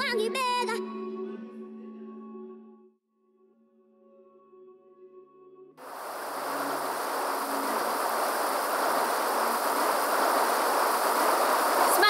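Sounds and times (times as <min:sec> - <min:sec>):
river flowing over rocks: 0:05.8 - 0:12.0.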